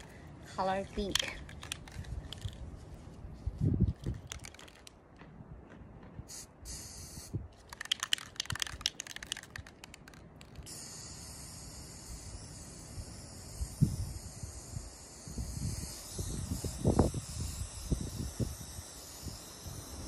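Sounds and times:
spray can clicks and rattles: 0:01.0 - 0:02.6, 0:03.9 - 0:05.0, 0:06.7 - 0:11.8
spray can hissing: 0:01.1 - 0:02.6, 0:04.0 - 0:04.8, 0:06.3 - 0:20.0.

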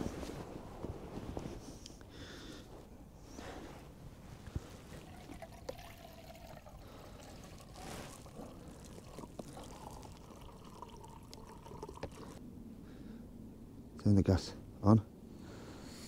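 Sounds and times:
water pouring into pot: 0:04.9 - 0:12.4.

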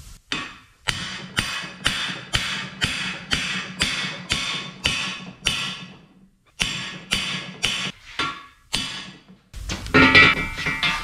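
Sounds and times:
hammer striking metal ringing: 0:10.0 - 0:11.0.

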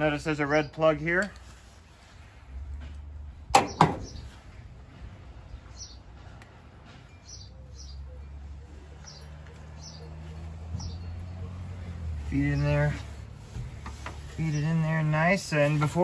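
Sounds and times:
small birds chirping: 0:03.6 - 0:16.0.

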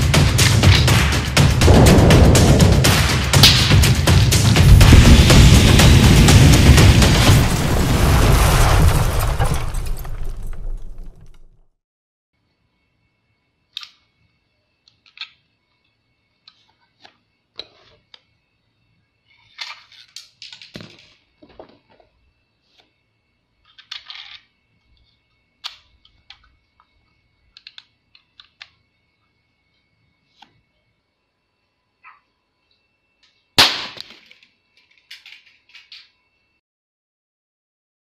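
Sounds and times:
faint high whine: 0:12.4 - 0:36.6.

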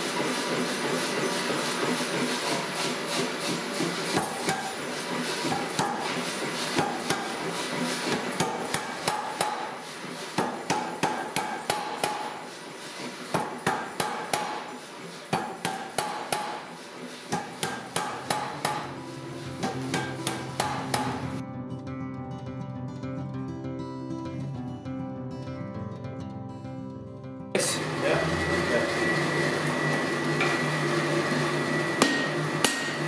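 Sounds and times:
power hammer striking steel: 0:03.8 - 0:12.5, 0:13.3 - 0:21.4, 0:32.0 - 0:33.0.

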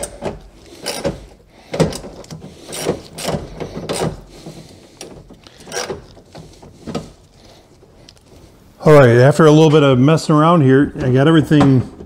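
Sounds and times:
hand ratchet clicking: 0:00.0 - 0:06.5.

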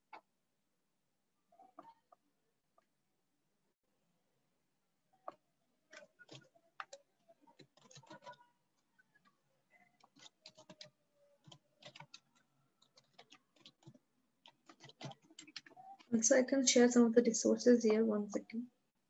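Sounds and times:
computer keyboard typing: 0:05.3 - 0:16.2.

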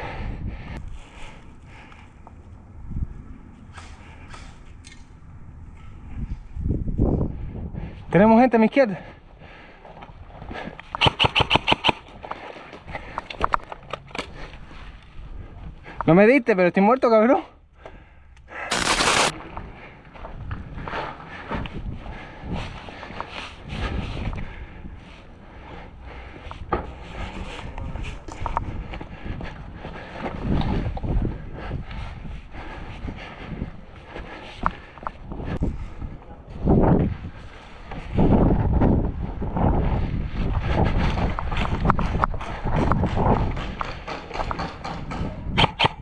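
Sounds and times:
wind rumbling on microphone: 0:00.0 - 0:08.4, 0:09.0 - 0:16.1, 0:17.9 - 0:46.0
footsteps on rough ground: 0:08.8 - 0:16.2, 0:18.7 - 0:44.7
scattered clicks: 0:10.8 - 0:12.4, 0:18.4 - 0:19.3
airsoft gun shots: 0:11.0 - 0:12.0.

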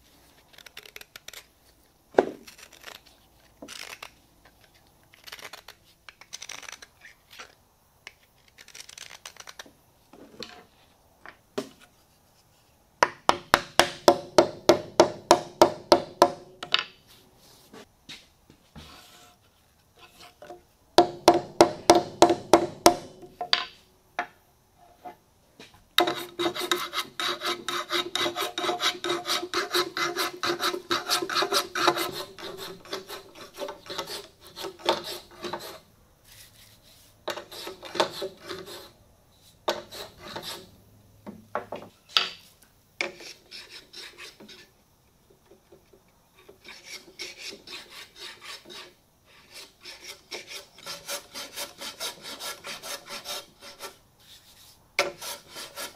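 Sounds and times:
hand plane shaving wood: 0:26.0 - 0:35.8, 0:37.3 - 0:38.9, 0:39.7 - 0:40.7, 0:46.6 - 0:55.9.

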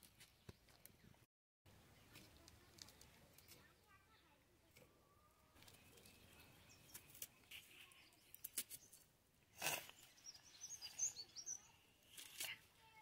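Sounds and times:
small birds chirping: 0:00.1 - 0:13.0
onion being peeled and cut: 0:12.0 - 0:12.6.

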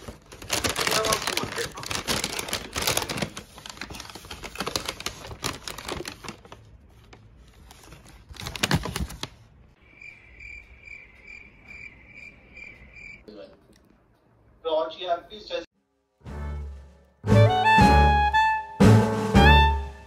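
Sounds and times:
plastic bag rustling and crinkling: 0:00.0 - 0:09.6.

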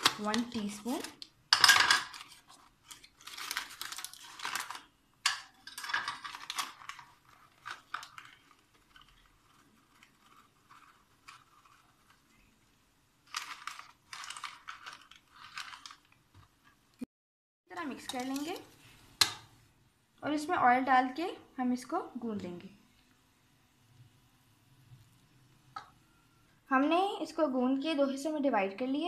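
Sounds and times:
paper packaging crinkling: 0:00.0 - 0:01.3, 0:02.0 - 0:16.8.

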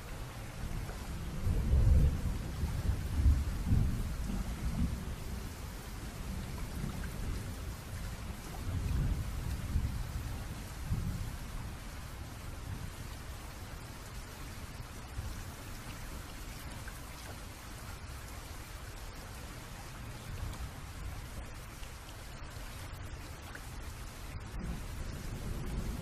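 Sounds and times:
steady rain: 0:00.0 - 0:26.0
thunder rumbling: 0:00.7 - 0:11.9, 0:24.4 - 0:26.0.

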